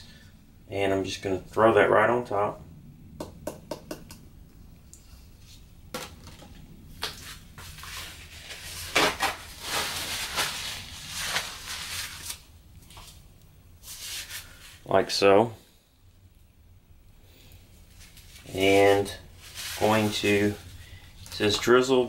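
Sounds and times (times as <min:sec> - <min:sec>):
scraping and rustling: 0:05.4 - 0:13.2, 0:17.8 - 0:21.4.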